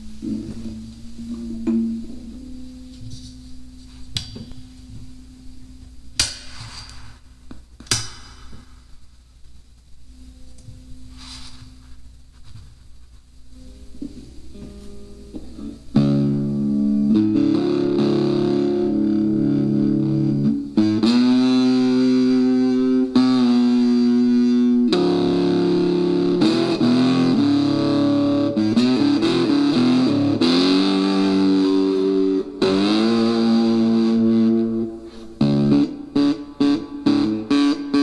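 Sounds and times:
electric guitar through small amp: 0.0 - 3.1, 13.6 - 38.0.

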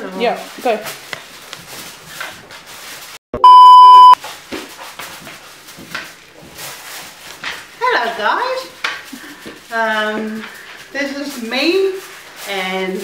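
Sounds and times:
censor bleep: 3.4 - 4.2.

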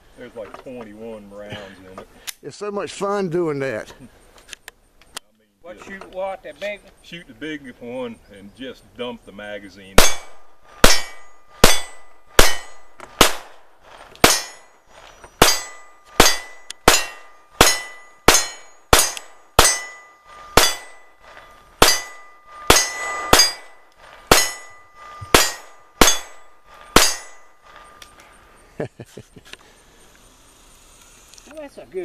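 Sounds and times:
handgun shots: 10.0 - 13.5.

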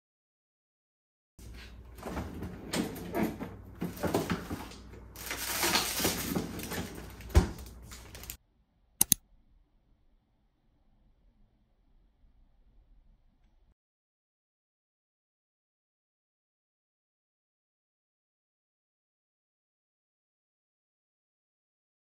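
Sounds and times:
drawer sliding: 1.4 - 8.4
plastic packets rustling: 3.8 - 8.4
quick clicks: 9.0 - 9.2.

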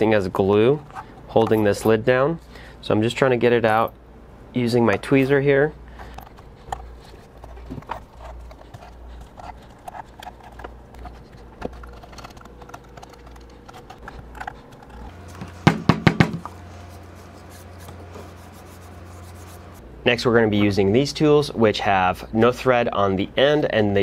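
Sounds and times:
metal housing knocking on bench: 15.6 - 16.4.

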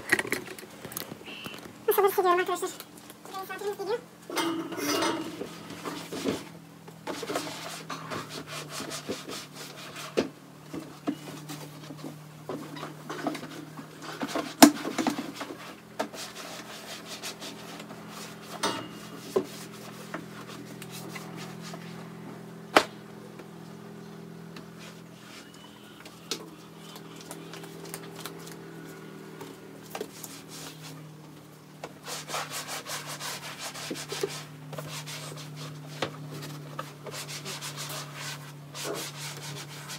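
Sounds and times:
scrubbing on a hard surface: 7.1 - 22.1, 29.9 - 31.1, 31.9 - 39.9.

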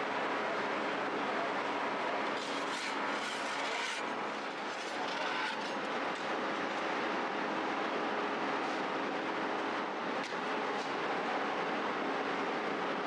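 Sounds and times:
faint constant hum: 0.0 - 13.0
bakery machinery noise: 0.4 - 7.0.

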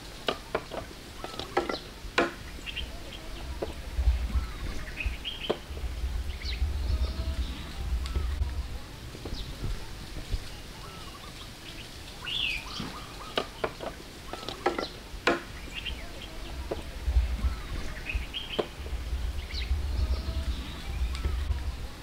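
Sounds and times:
birds chirping and twittering: 0.0 - 22.0
low rumble: 2.4 - 13.1, 15.0 - 22.0.

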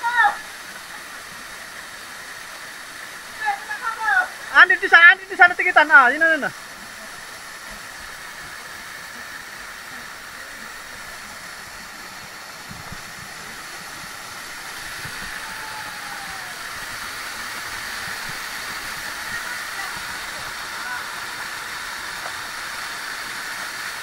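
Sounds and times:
flowing water rushing: 0.0 - 24.0.

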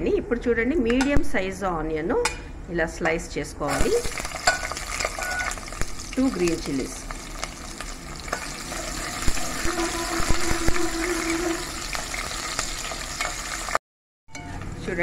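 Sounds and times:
onions sizzling in hot oil: 3.7 - 13.8.

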